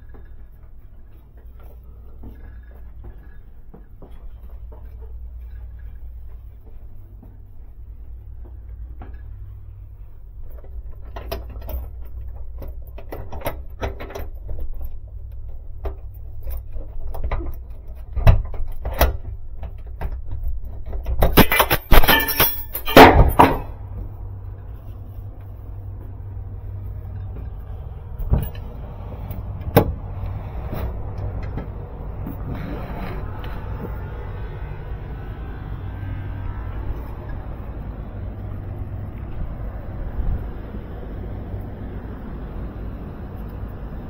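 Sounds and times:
steady low hum: 0.0 - 44.0
metal ladder knocks and clanks: 15.5 - 24.1
loud metallic rattling: 21.3 - 23.9.

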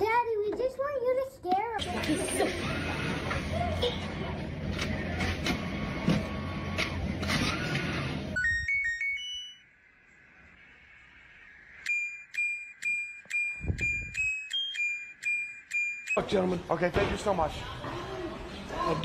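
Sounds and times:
washing machine selector beeps: 11.8 - 16.2.

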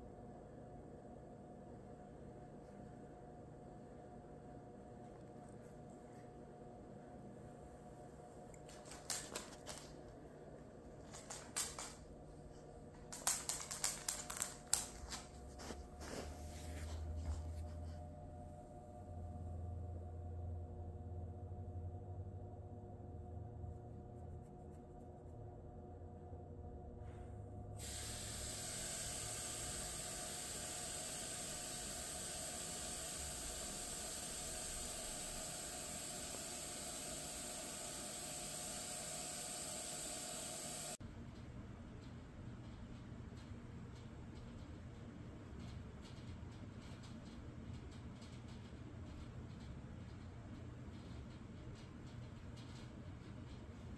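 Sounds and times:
dog claws clicking on hard floor: 8.6 - 10.0, 11.0 - 12.1, 12.9 - 15.4
steady background hiss: 27.8 - 41.0.

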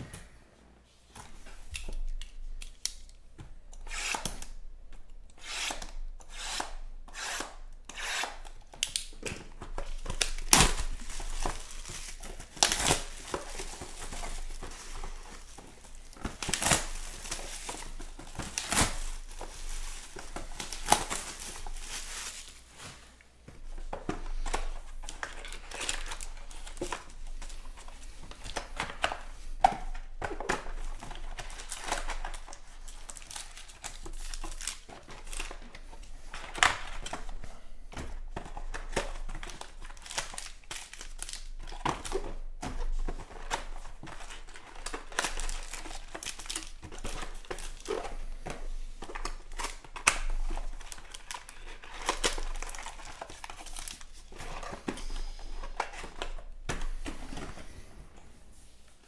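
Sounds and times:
plastic shrink-wrap crinkling and tearing: 8.3 - 23.0, 24.6 - 29.2, 30.0 - 37.4, 38.6 - 54.9.

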